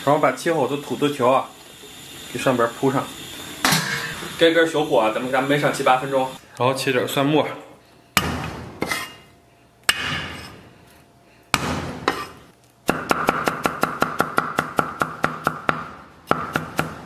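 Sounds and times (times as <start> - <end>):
fast chopping on wooden block: 12.9 - 17.0.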